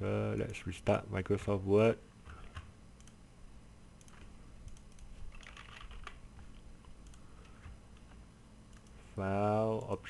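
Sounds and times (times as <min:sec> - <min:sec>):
faint keyboard typing: 0:02.2 - 0:03.2, 0:04.0 - 0:09.0.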